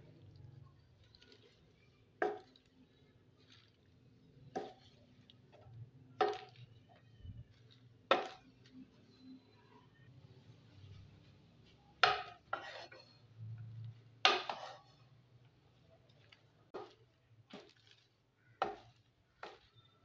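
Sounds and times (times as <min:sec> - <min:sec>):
wooden spatula knocking on wok: 0:02.2 - 0:02.6, 0:06.2 - 0:06.6, 0:12.0 - 0:12.8, 0:14.2 - 0:14.8, 0:18.6 - 0:19.7.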